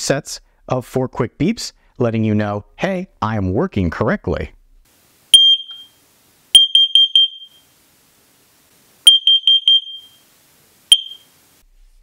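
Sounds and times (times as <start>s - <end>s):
alarm quick beeps: 5.3s - 5.9s, 6.6s - 7.6s, 9.1s - 10.2s, 10.9s - 11.3s
alarm chirp: 5.3s - 7.7s, 9.0s - 10.2s, 10.9s - 11.4s.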